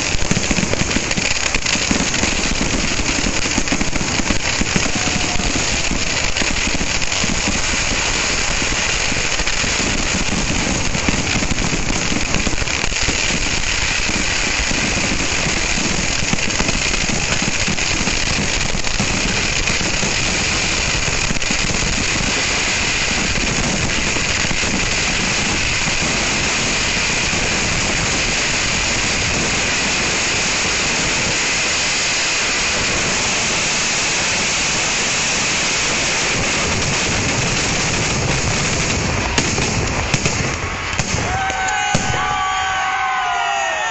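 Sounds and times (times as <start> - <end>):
fireworks barrage: 0.0 - 43.9.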